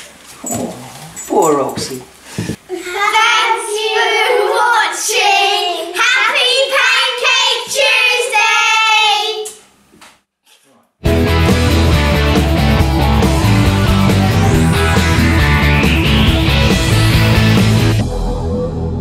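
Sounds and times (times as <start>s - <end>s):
children singing together: 2.7s - 9.3s.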